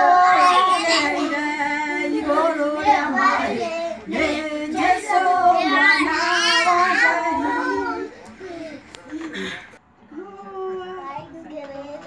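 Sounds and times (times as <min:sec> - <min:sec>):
woman and children singing: 0:00.0 - 0:08.3.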